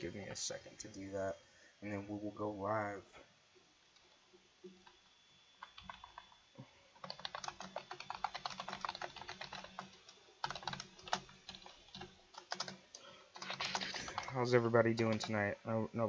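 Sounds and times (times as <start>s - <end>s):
typing on computer keyboard: 5.6s - 6.4s, 7.0s - 15.4s.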